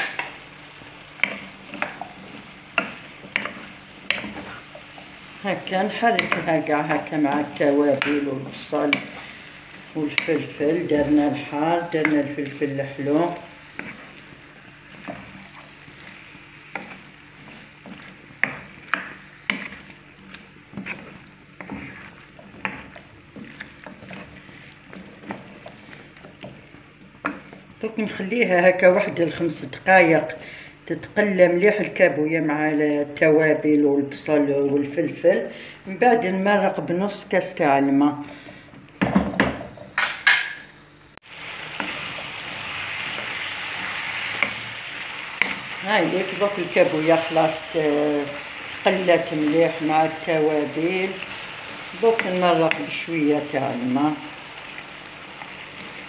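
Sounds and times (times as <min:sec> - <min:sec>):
soft frying sizzle: 0:00.0 - 0:30.3, 0:41.2 - 0:56.0
spatula scraping frying pan: 0:13.7 - 0:26.6, 0:41.6 - 0:45.8.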